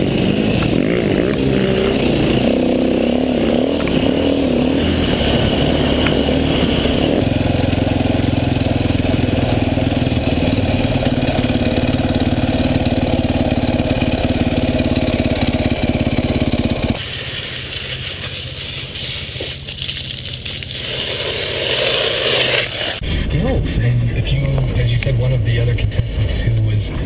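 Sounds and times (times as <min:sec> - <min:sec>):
dirt bike engine running: 0:00.0 - 0:27.0
water spattering from a hose: 0:17.0 - 0:23.0.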